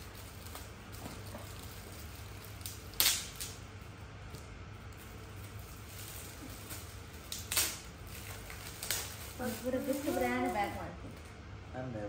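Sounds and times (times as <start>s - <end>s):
low steady hum: 0.0s - 12.0s
packaging rustling: 4.8s - 11.2s.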